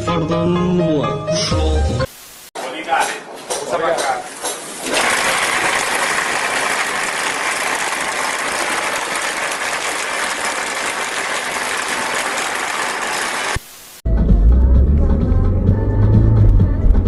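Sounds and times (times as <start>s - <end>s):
wall-plastering machine running: 4.2s - 13.7s.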